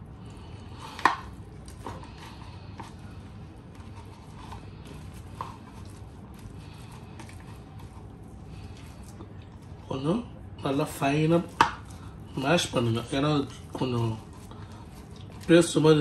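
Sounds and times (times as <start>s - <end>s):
steady low hum: 0.0s - 16.0s
potatoes being mashed in a bowl: 0.2s - 16.0s.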